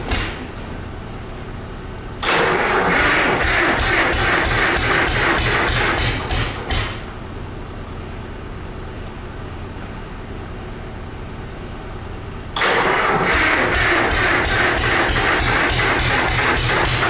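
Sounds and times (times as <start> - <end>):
diesel engine cranking: 2.2 - 5.1, 12.6 - 17.0.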